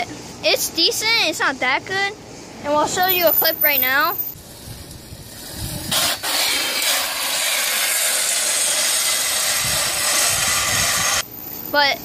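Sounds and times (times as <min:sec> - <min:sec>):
metal bar scraping on asphalt: 0:04.5 - 0:11.2.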